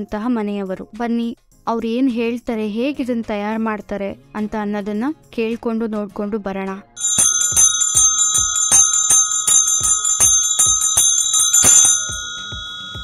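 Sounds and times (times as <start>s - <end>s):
hand bells ringing: 7.0s - 13.0s.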